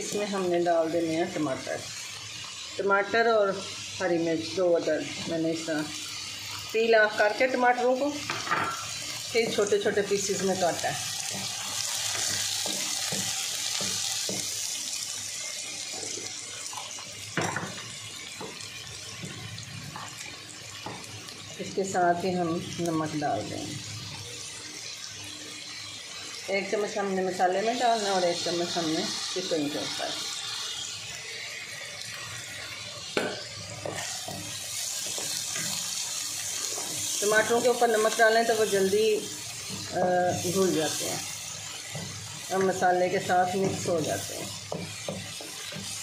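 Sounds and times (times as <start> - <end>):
vegetables sizzling in hot oil: 0.0 - 46.0
spoon stirring masala: 33.8 - 38.5, 43.6 - 46.0.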